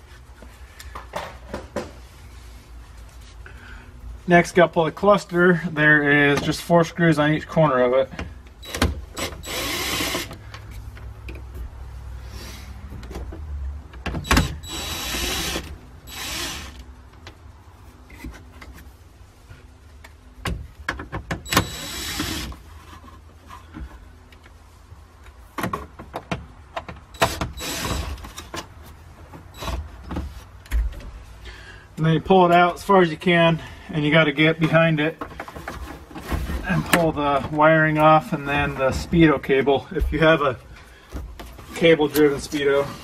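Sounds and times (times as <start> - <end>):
cordless drill motor whine: 8.6 - 10.3, 14.4 - 16.8, 21.5 - 22.5, 27.2 - 28.0.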